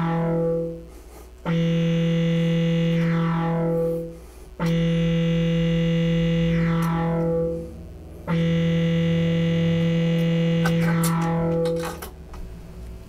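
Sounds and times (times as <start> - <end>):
buzzy synthesizer note: 0.0 - 13.0.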